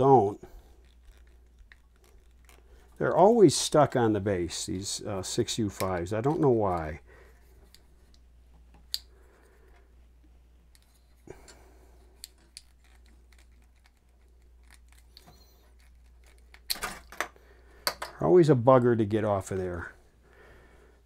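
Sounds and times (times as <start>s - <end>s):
tube clicking and scraping in socket: 12.1s - 18.0s.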